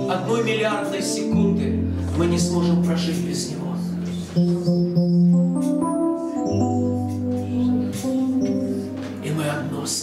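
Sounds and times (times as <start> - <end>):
electronic keyboard chords: 0.0 - 10.0.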